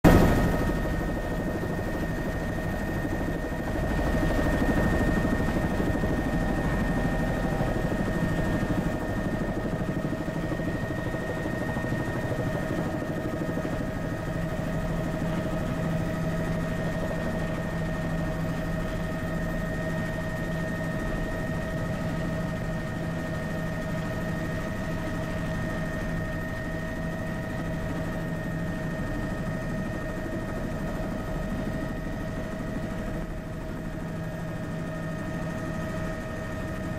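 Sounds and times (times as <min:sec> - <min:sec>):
helicopter turbine whine: 0:00.0 - 0:36.9.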